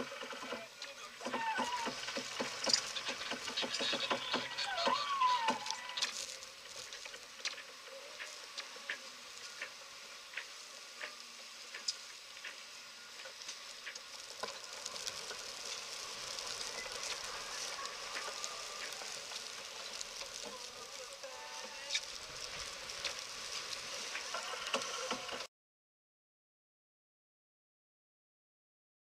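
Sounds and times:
wind and sea spray hiss: 0.0 - 25.5.

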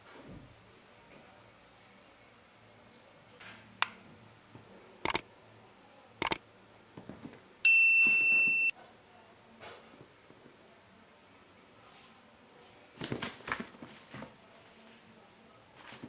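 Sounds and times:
sharp clicks: 5.0 - 5.2
bright electronic beep: 8.2 - 8.7.

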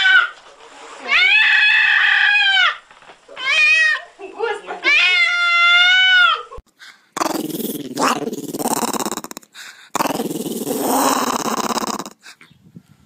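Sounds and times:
dog growling: 7.2 - 12.2.

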